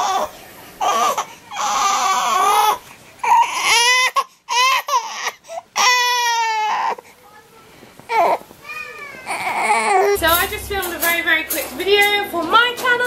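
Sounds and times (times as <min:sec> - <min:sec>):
newborn baby crying: 0:00.0 - 0:07.1, 0:08.1 - 0:10.2.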